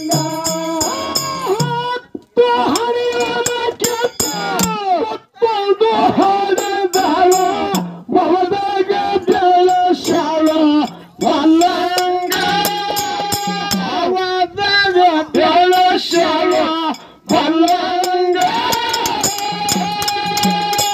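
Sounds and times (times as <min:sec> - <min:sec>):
light high percussion ticks: 0:00.0 - 0:04.8, 0:09.3 - 0:14.0, 0:15.3 - 0:20.9
man singing into a microphone: 0:00.0 - 0:20.9.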